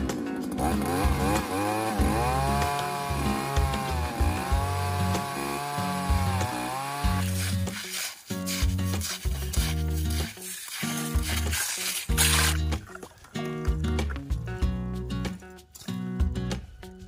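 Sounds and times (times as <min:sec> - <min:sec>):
ice auger engine running: 0:00.0 - 0:08.0, 0:09.0 - 0:14.2.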